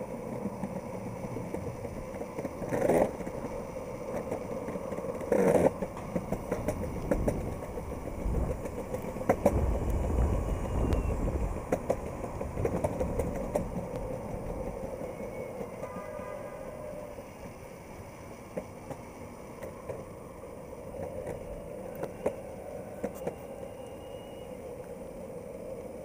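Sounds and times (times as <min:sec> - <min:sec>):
skateboard clacks: 0:00.0 - 0:15.9, 0:18.3 - 0:20.2
skateboard rolling on sidewalk: 0:00.0 - 0:26.0
bus rumbling past: 0:06.0 - 0:18.2.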